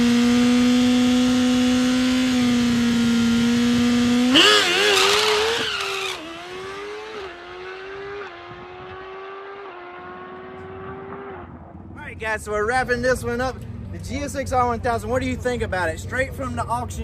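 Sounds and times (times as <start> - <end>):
motorcycle engine revving: 0.0 - 12.0
rear tyre spinning: 4.0 - 8.6.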